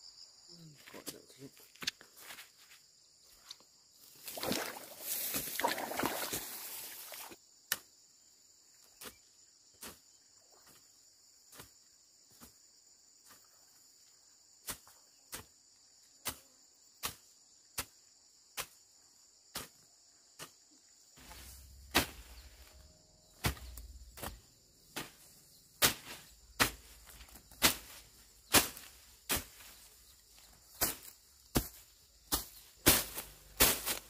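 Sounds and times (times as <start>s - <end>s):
high insect drone: 0.0s - 34.0s
grass and plants rustling: 4.0s - 7.4s, 20.4s - 34.0s.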